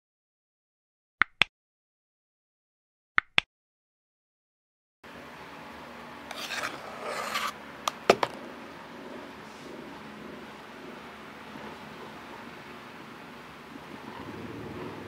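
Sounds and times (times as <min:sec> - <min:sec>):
spatula scraping icing: 0:06.3 - 0:07.6.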